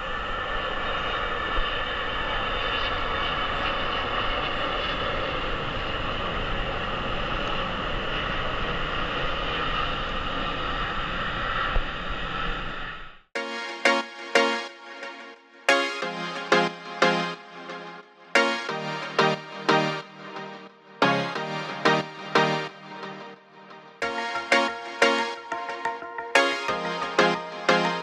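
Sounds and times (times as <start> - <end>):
music: 13.4 - 28.0.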